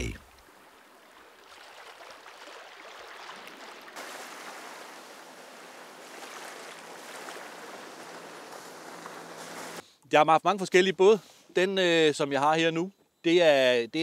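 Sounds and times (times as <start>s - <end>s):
rush of water and spray: 0.0s - 9.8s
water lapping at shore: 0.0s - 9.8s.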